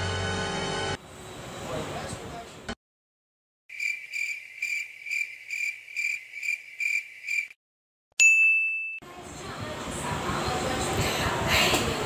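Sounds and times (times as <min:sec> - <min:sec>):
cricket chirping: 0:03.7 - 0:07.6
bright ding: 0:08.2 - 0:09.0.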